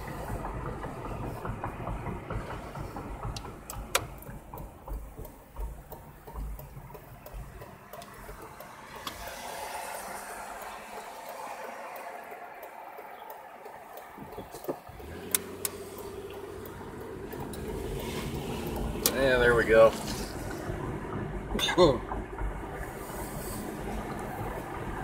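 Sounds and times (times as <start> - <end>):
low thumps: 0.0 - 8.6, 14.1 - 25.0
car road noise and engine rumble: 0.0 - 25.0.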